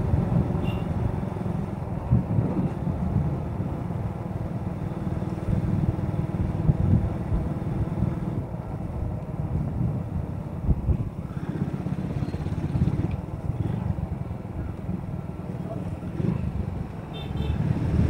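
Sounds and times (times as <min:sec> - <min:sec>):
wind buffeting microphone: 0:00.0 - 0:18.0
motorcycle engine running: 0:11.2 - 0:14.0.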